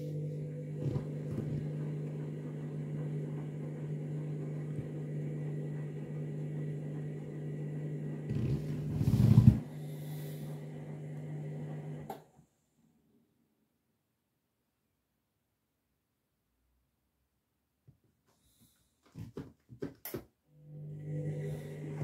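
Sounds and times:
washing machine motor humming: 0.0 - 12.2, 20.5 - 22.0.

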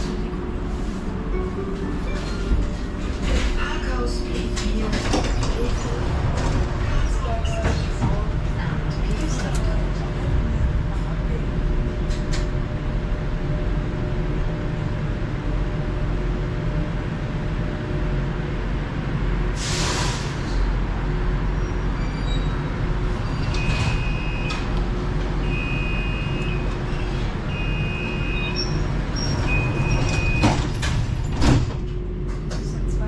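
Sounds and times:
people mover train rumbling: 0.0 - 33.0
two-note door warning beeps: 25.4 - 26.7, 29.4 - 30.6.

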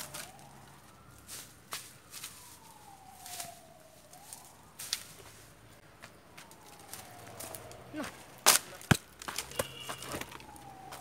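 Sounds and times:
distant siren wailing: 0.0 - 11.0.

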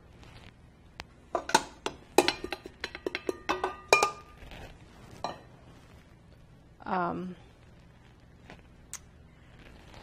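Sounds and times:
metal bowl clinking on bowl rim: 1.4 - 4.4.

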